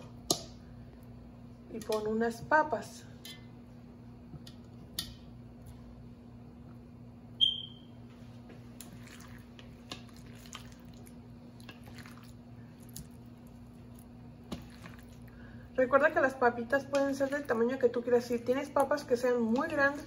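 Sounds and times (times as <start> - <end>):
steady low hum: 0.0 - 20.0
wet squelches of meat: 8.7 - 15.4.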